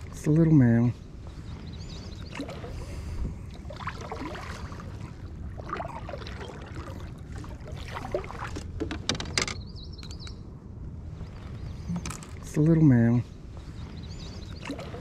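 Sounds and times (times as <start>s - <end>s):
water lapping against kayak hull: 1.1s - 9.4s, 13.4s - 15.0s
small knocks: 8.6s - 9.6s.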